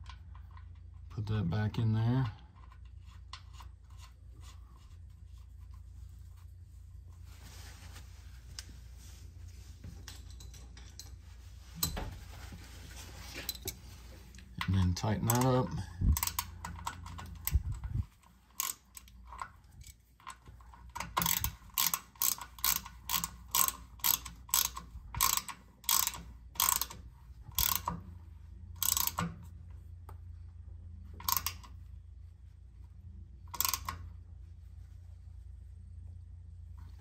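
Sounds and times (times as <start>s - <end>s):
hand ratchet clicking: 15.2s - 28.0s, 28.8s - 29.4s, 31.2s - 31.7s, 33.5s - 34.0s.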